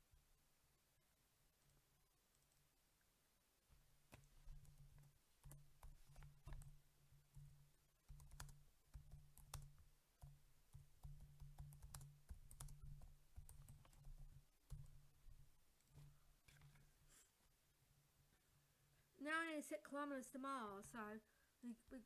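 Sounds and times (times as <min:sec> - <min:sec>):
keyboard typing: 0:04.1 - 0:16.8.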